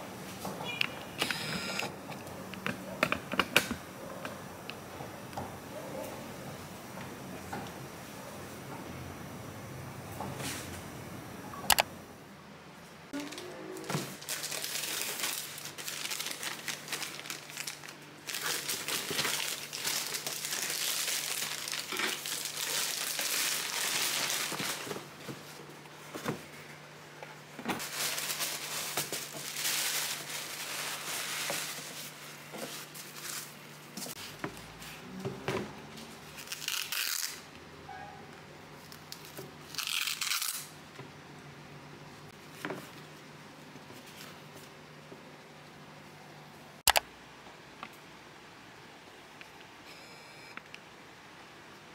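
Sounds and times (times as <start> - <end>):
plastic mailer tearing: 13.2 - 25.0, 36.4 - 37.4, 39.1 - 40.7
tissue paper crinkling: 14.1 - 25.2, 27.8 - 34.3.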